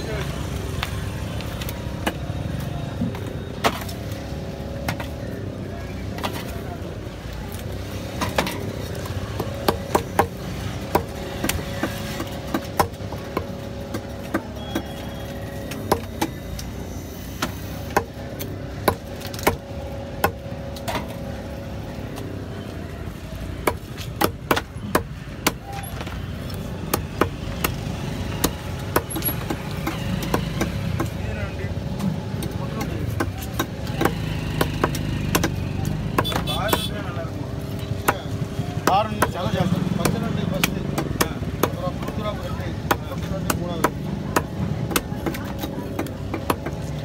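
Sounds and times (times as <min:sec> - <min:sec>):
knife chopping fish on wooden block: 0:09.3 - 0:15.0.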